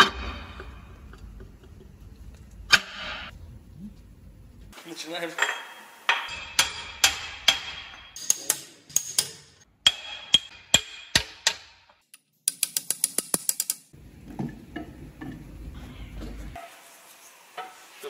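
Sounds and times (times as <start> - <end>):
hammer striking metal: 5.4 - 12.0.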